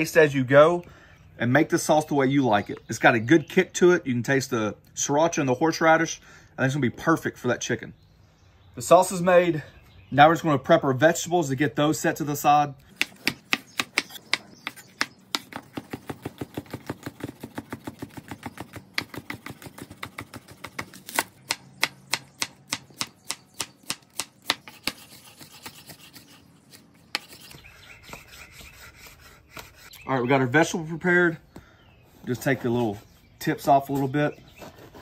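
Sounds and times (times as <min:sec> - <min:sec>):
knife chopping on cutting board: 0:13.0 - 0:25.1.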